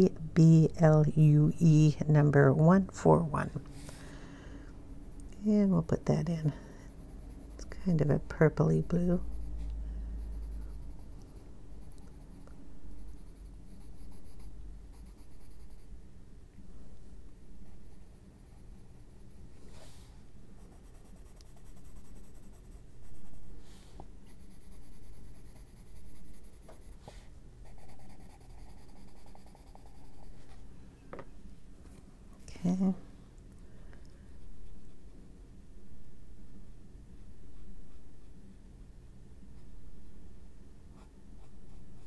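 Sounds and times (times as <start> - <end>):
pencil scratching on paper: 7.0 - 9.6, 10.2 - 15.9, 20.6 - 23.5, 24.3 - 30.6.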